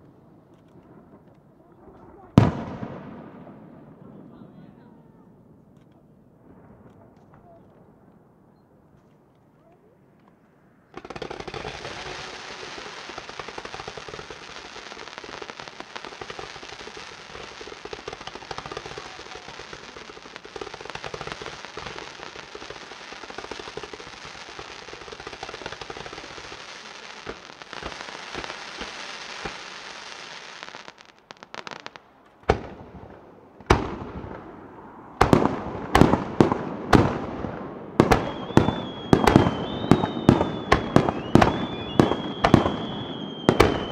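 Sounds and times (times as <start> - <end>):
ground fountain firework hissing: 11.0 - 31.9, 37.8 - 43.9.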